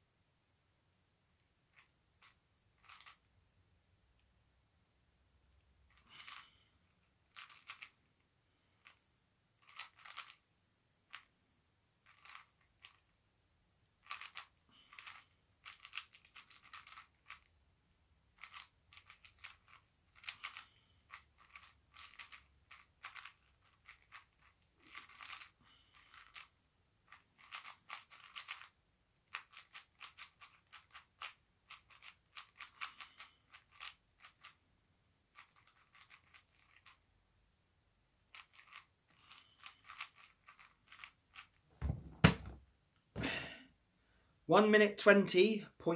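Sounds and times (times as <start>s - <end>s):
plastic puzzle cube clicking: 1.7s - 3.2s, 5.9s - 6.4s, 7.2s - 8.0s, 9.6s - 10.4s, 12.0s - 13.1s, 14.0s - 17.5s, 18.4s - 26.5s, 27.1s - 34.6s, 35.4s - 37.0s, 38.3s - 41.6s.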